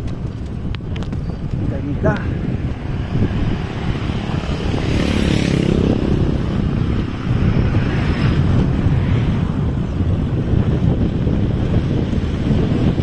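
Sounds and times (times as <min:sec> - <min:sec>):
wind buffeting microphone: 0:00.0 - 0:13.0
vehicle engine passing: 0:02.8 - 0:10.7.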